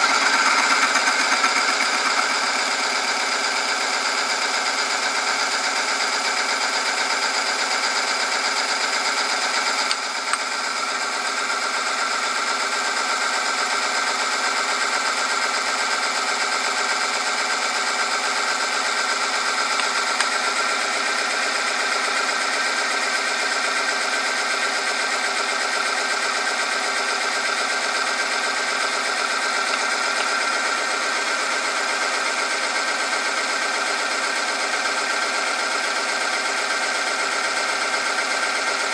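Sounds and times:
electric motor whine and hum: 0.0 - 38.9.

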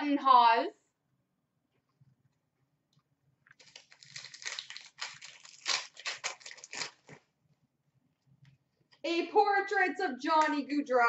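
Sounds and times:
foil wrapper crinkling and tearing: 3.6 - 7.3.

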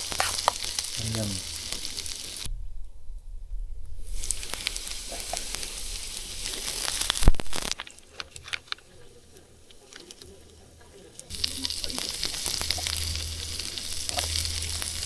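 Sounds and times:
onions sizzling in frying pan: 0.0 - 2.5, 4.0 - 8.3, 11.1 - 15.0.

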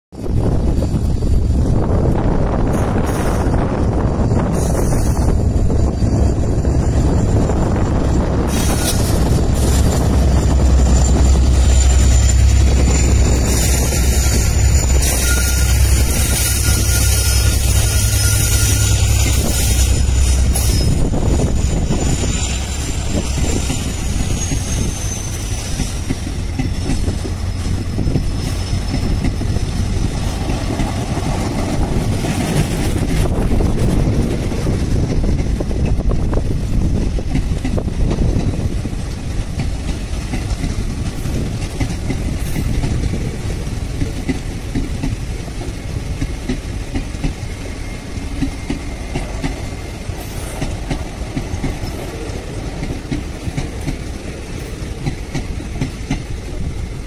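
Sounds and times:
train coaches rumbling: 0.1 - 57.0
high squeal: 0.3 - 35.0
wheels clickety-clack: 21.9 - 57.0.

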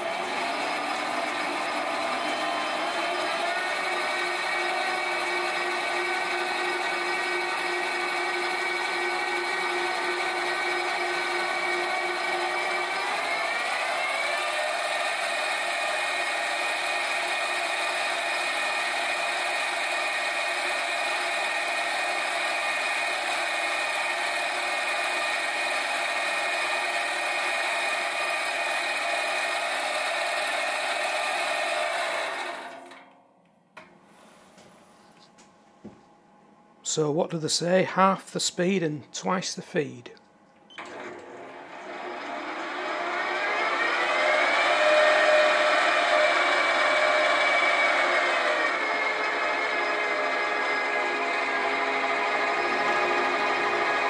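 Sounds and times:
metal lathe gear and motor whine: 0.0 - 32.8, 40.8 - 54.0
drill boring into metal bar: 0.0 - 33.0, 41.9 - 54.0.

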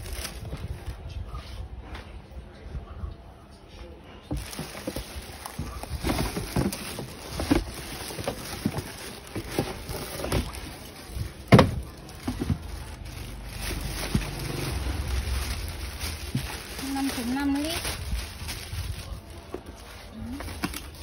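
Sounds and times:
plastic bag crinkling: 0.0 - 1.0, 4.3 - 21.0
cardboard box scraping and knocking: 4.3 - 13.0.

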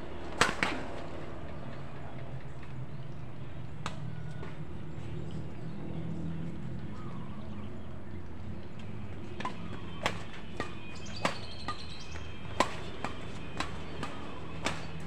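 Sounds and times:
rackets hitting shuttlecock: 0.3 - 1.1, 8.8 - 15.0.

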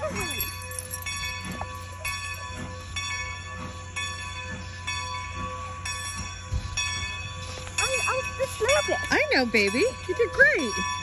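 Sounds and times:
low train rumble: 0.0 - 11.0
railroad crossing bell ringing: 0.0 - 11.0.

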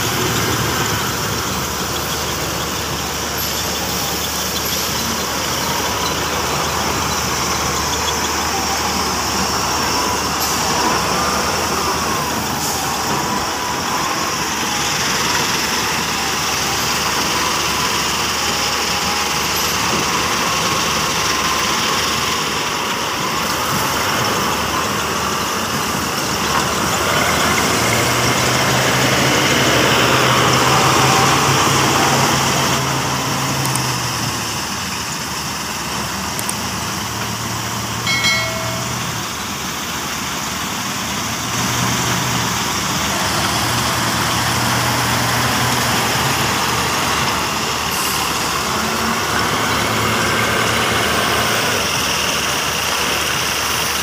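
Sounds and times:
diesel engine revving: 0.0 - 54.0
short beep: 38.1 - 39.2.

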